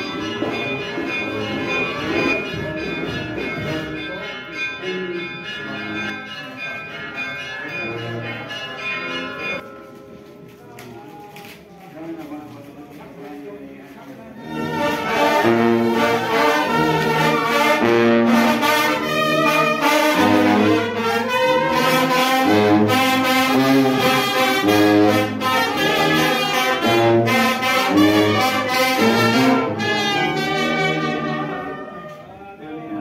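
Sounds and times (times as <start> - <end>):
brass band playing: 14.4 - 32.3.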